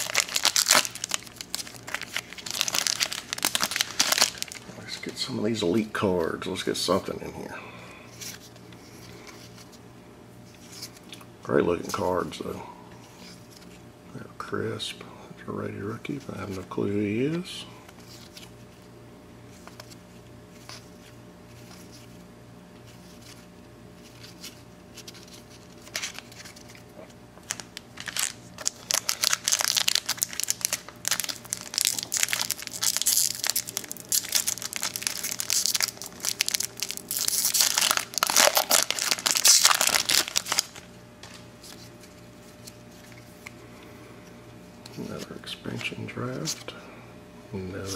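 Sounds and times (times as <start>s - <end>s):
plastic wrapper crinkling and tearing: 0.0s - 5.1s, 24.1s - 26.8s, 27.4s - 42.0s.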